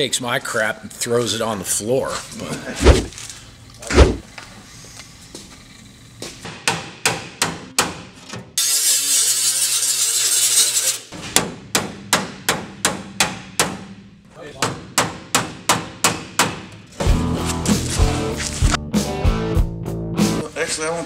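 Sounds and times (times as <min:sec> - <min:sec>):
dull thud: 0:02.8 - 0:03.2, 0:03.9 - 0:04.2.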